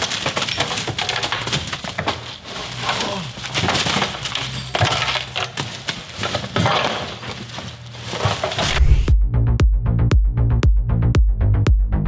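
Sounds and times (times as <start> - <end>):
packaged goods clattering into bin: 0.0 - 8.8.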